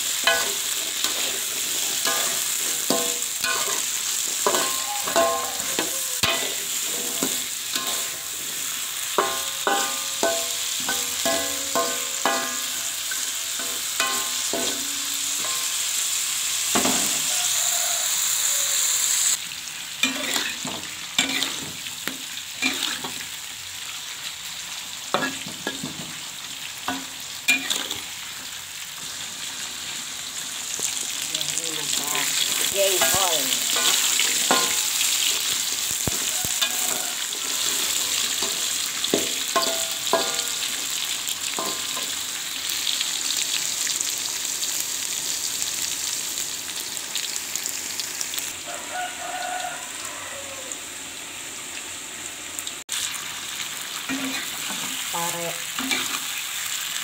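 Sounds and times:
food sizzling in oil: 0.0s - 57.0s
metal spatula scraping pan: 0.2s - 16.0s, 20.0s - 21.7s, 32.2s - 40.7s.

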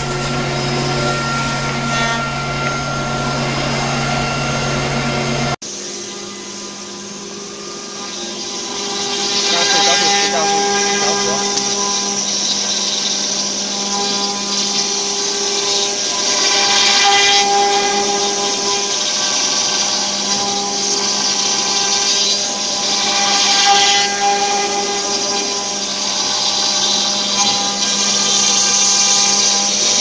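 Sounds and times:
router spindle milling wood: 7.6s - 30.0s.

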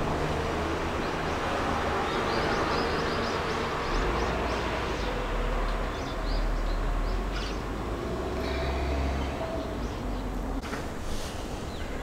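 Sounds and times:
small birds chirping: 1.0s - 7.7s, 8.3s - 10.6s.

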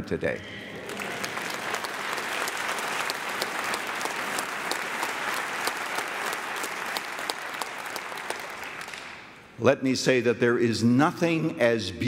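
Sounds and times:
congregation applauding: 0.3s - 9.5s.

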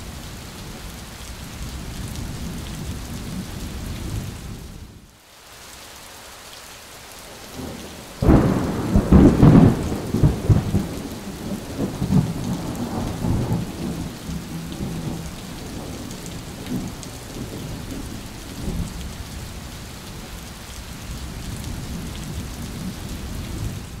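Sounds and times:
steady rain: 0.0s - 24.0s
thunder rumbling: 7.6s - 19.0s.

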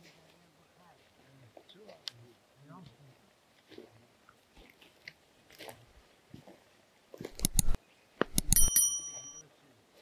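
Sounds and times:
short metallic ring: 7.4s - 9.4s.

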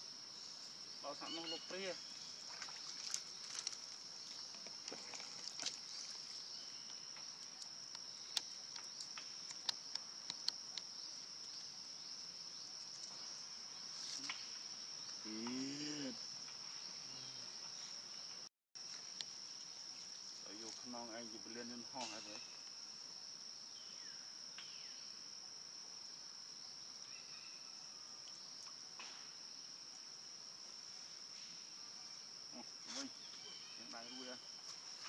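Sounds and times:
insects droning: 0.0s - 35.0s.

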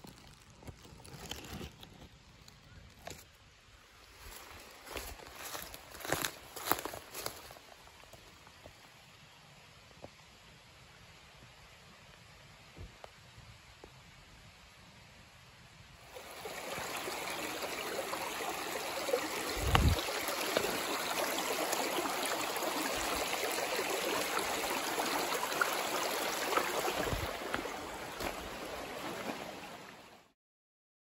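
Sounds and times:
stream rushing over rocks: 16.0s - 30.3s.

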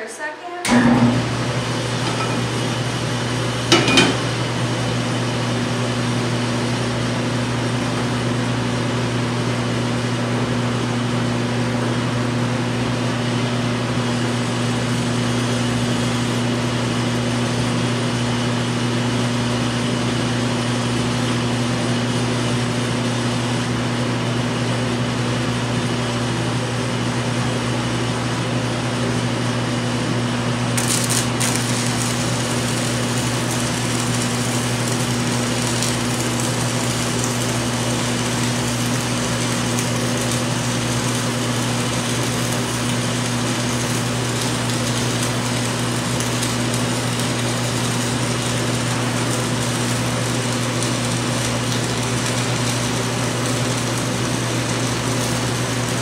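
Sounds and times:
ventilation fan humming: 0.0s - 56.0s
welding arc hissing: 30.8s - 56.0s.

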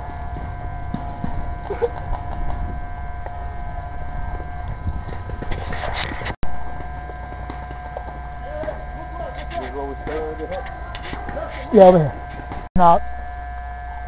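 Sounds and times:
wind on microphone: 0.0s - 9.4s
thin steady whine: 0.0s - 14.0s.

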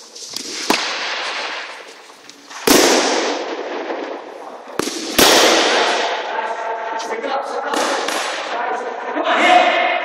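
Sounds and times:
sticks striking with sharp cracks: 0.2s - 3.4s, 7.7s - 8.6s.

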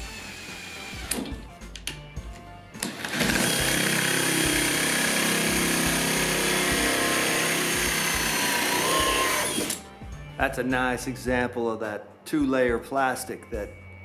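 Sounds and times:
cordless drill motor whine: 0.0s - 1.4s, 2.9s - 9.8s
hole saw cutting plastic: 0.0s - 1.4s, 2.8s - 9.8s.

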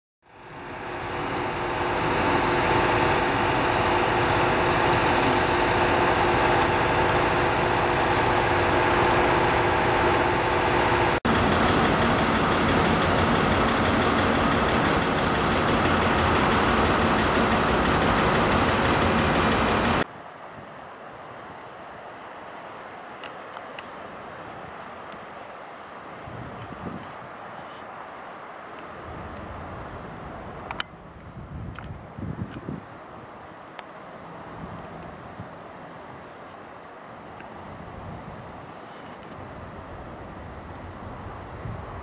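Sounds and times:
diesel railcar engine drone: 0.2s - 20.1s, 28.9s - 31.9s.

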